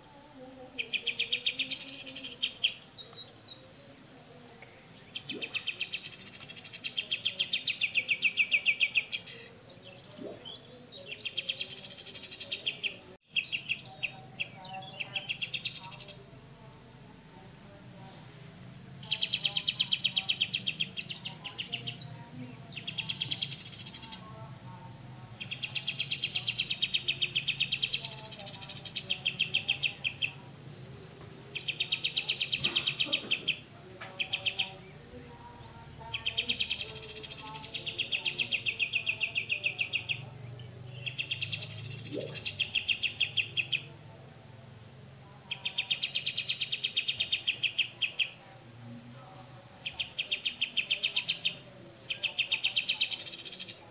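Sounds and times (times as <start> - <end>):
bird singing buzzy rattling trills: 18.8 - 24.4, 35.6 - 43.9.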